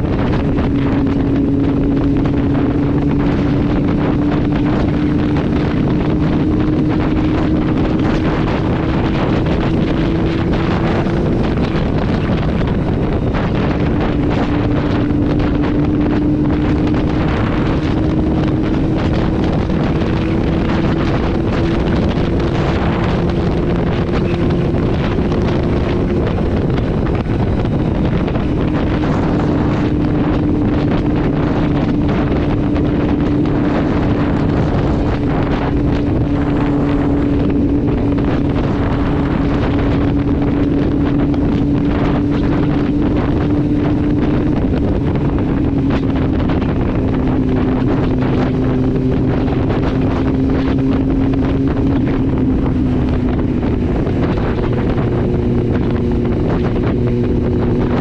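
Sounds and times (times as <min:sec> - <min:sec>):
motorcycle engine at speed: 0:00.0 - 0:58.0
wind noise on microphone: 0:00.0 - 0:58.0.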